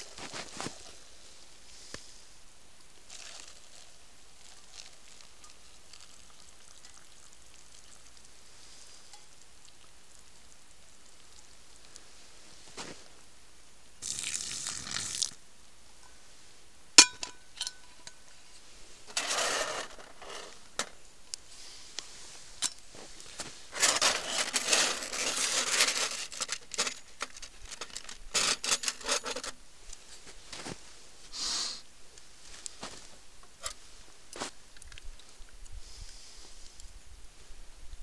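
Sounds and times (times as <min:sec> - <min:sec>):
rustling and scraping: 0:00.0 - 0:02.0, 0:12.1 - 0:13.2, 0:17.9 - 0:31.4, 0:32.3 - 0:34.6.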